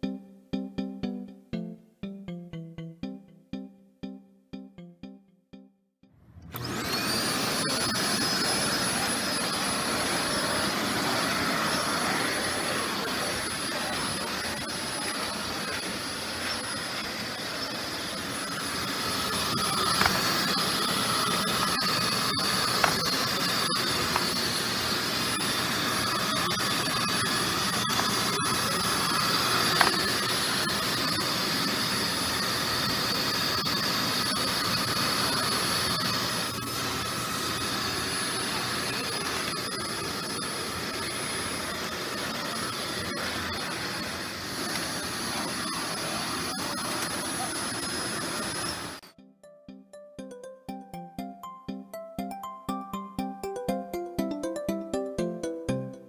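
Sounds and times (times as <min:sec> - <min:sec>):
vacuum cleaner running: 0:06.2 - 0:49.0.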